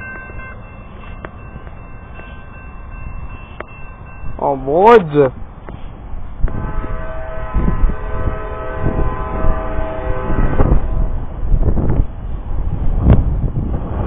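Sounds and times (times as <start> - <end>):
wind buffeting microphone: 0.0 - 14.0
locomotive horn: 6.4 - 11.4.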